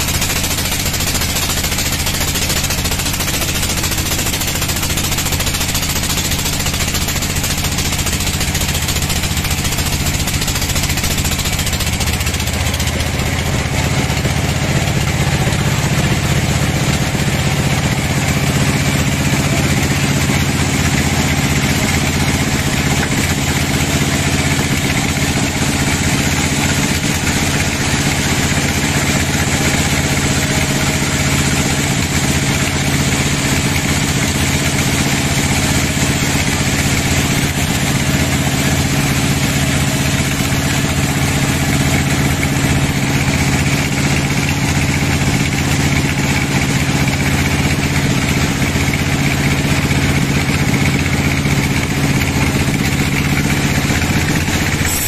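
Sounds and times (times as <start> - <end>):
band saw drone: 51.5 - 55.0
saw blade cutting wood hiss: 54.6 - 55.0.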